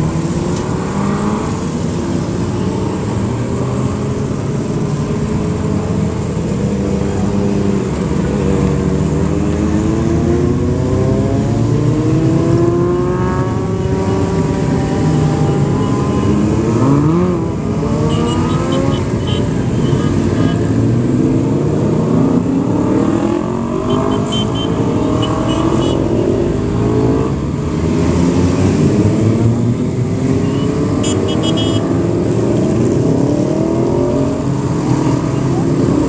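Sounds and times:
motorcycles revving past: 0.0s - 36.0s.

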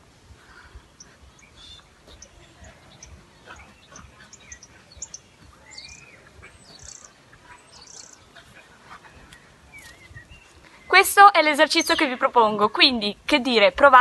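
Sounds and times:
birds chirping: 0.0s - 14.0s
birds whistled calls: 0.4s - 8.4s, 9.0s - 12.2s.

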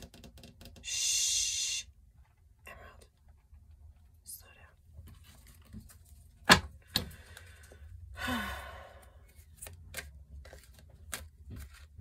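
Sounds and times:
person sighing: 0.8s - 1.9s, 7.2s - 9.4s.

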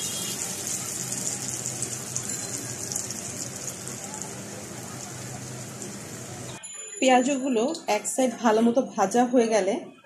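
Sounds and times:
fritters deep-frying in hot oil: 0.0s - 6.6s.

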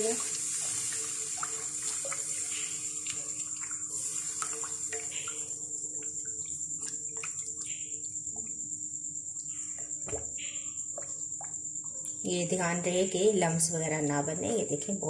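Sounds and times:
stock sizzling in a frying pan: 0.0s - 3.0s.

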